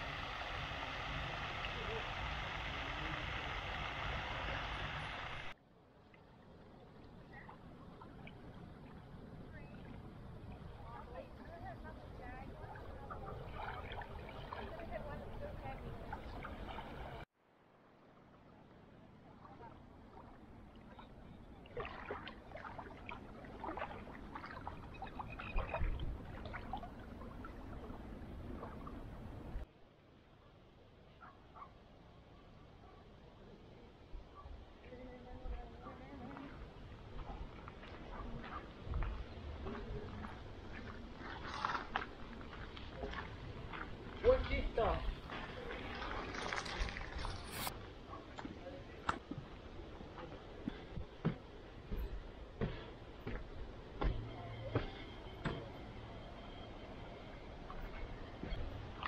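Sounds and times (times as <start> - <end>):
rushing outdoor noise with low rumble: 0.0 - 5.6
small waves lapping: 0.0 - 17.3, 19.0 - 29.6, 35.9 - 59.0
lakeside ambience: 0.0 - 59.0
wind rumbling on microphone: 23.9 - 29.6, 35.3 - 47.9.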